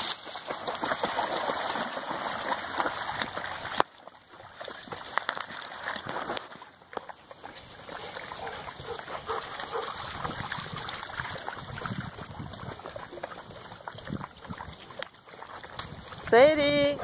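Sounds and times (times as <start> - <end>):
dogs splashing in water: 0.0 - 17.0
faint dog barks: 8.4 - 10.0.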